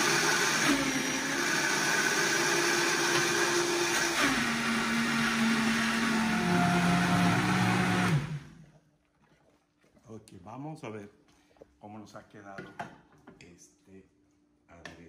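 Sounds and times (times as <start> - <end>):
blender running: 0.0 - 8.6.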